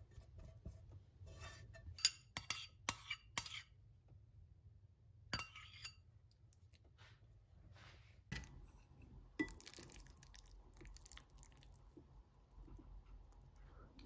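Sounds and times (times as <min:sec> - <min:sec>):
metal utensil clinking on ceramic bowl: 0:05.4 - 0:06.0.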